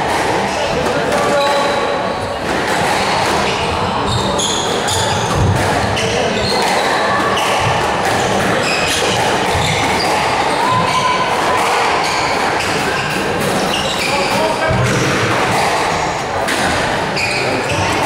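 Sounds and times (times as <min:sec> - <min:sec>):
shoes squeaking on wooden floor: 0:03.4 - 0:11.2, 0:12.0 - 0:14.7, 0:17.2 - 0:18.0.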